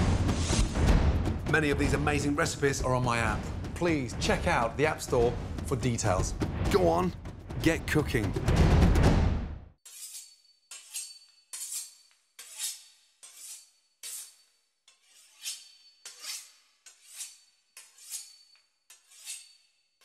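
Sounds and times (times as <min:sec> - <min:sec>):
knife sawing through crisp pastry: 0:09.8 - 0:20.0.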